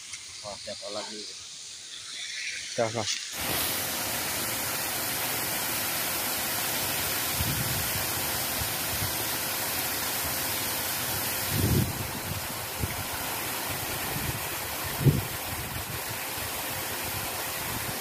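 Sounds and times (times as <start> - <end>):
flowing river water: 0.0 - 18.0
wind thumps on microphone: 11.4 - 13.0.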